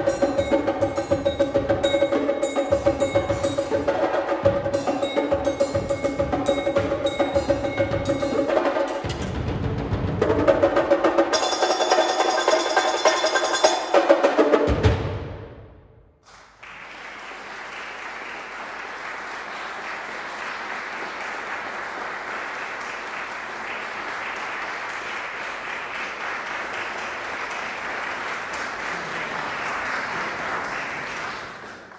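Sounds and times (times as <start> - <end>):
audience applauding: 16.2 - 31.9.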